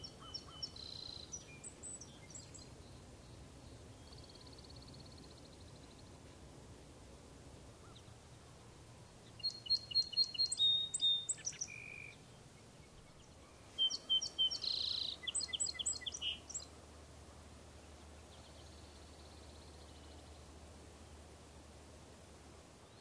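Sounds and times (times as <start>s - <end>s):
sparrow singing: 0.0s - 3.0s, 9.3s - 16.7s.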